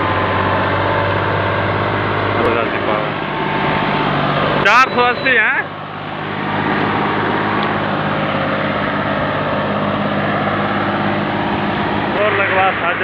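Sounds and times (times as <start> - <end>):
tractor diesel engine at high throttle: 0.0 - 13.0.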